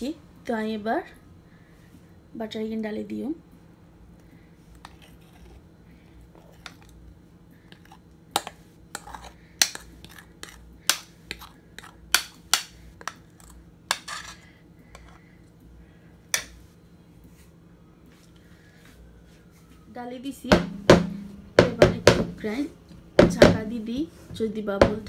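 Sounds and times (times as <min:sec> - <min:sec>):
metal spoon scraping ceramic bowl: 0:07.8 - 0:10.6, 0:13.4 - 0:14.4.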